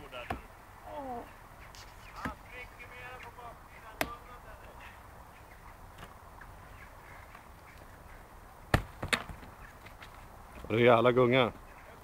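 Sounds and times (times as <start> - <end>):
faint outdoor background noise: 0.0 - 12.0.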